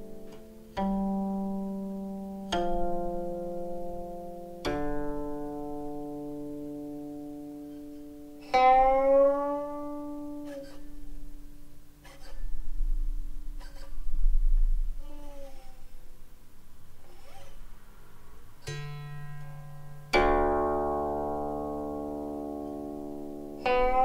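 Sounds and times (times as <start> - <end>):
plucked zither notes: 0.0 - 24.0
zither note sliding upward: 7.1 - 14.2, 17.0 - 20.6, 22.1 - 24.0.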